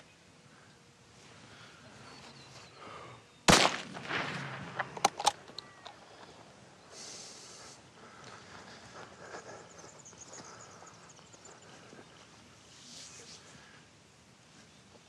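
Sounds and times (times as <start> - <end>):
rifle shot with echo: 3.5 - 5.5.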